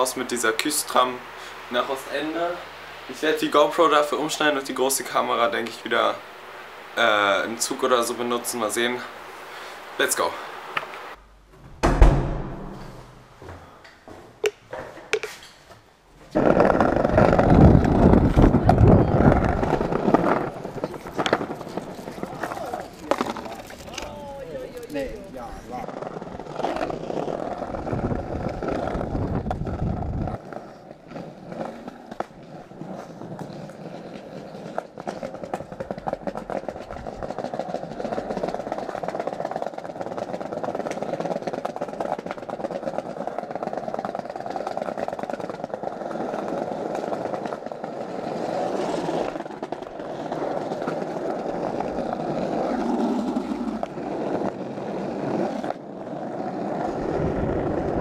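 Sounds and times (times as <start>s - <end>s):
heavy low rumble: 11.2s - 13.4s
skateboard wheels rolling over tiles: 13.4s - 58.0s.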